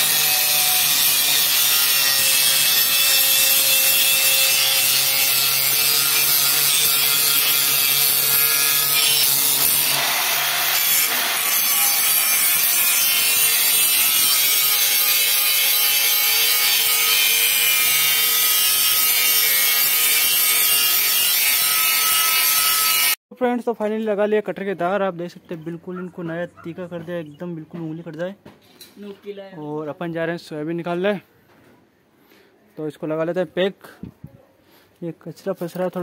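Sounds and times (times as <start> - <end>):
angle grinder grinding steel: 0.0 - 23.2.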